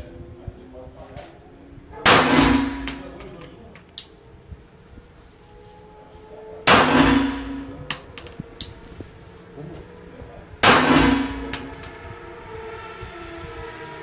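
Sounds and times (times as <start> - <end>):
pistol shots: 2.1 - 3.2, 6.7 - 8.1, 10.6 - 12.0.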